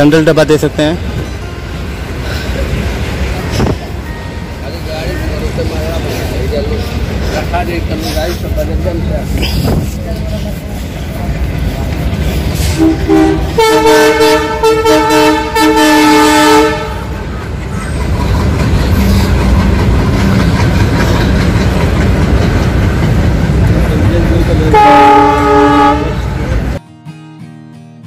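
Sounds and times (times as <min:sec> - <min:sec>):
locomotive rumbling past: 0:00.0 - 0:26.8
train wheel clatter: 0:02.1 - 0:14.6, 0:16.6 - 0:26.8
locomotive horn blasts: 0:12.8 - 0:17.2, 0:24.7 - 0:26.4.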